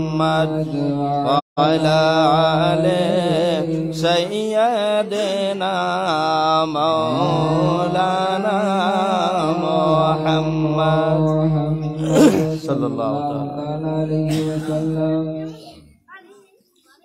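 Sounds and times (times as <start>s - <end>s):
man chanting devotional verse: 0.0s - 15.9s.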